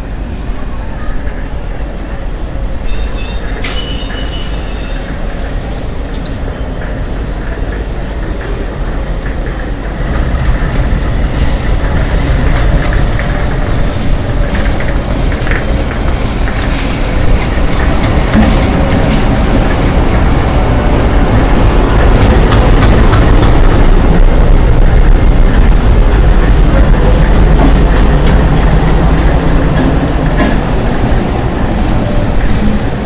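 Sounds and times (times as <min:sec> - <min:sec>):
diesel locomotive engine rumble: 0:00.0 - 0:33.0
click: 0:06.1 - 0:06.4.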